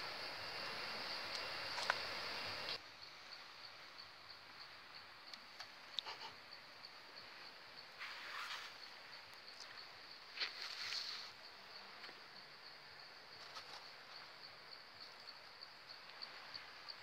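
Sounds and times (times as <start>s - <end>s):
high insect trill: 0.0s - 17.0s
rustle and scrape of handling: 8.0s - 8.9s, 10.3s - 11.4s, 13.4s - 13.9s.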